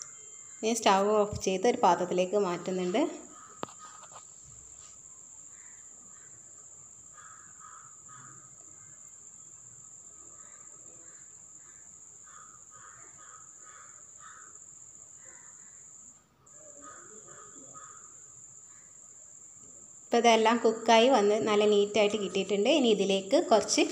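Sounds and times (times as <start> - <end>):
faint caw-like bird calls: 3.2 - 4.2, 5.5 - 6.5, 7.1 - 9.0, 10.3 - 19.0.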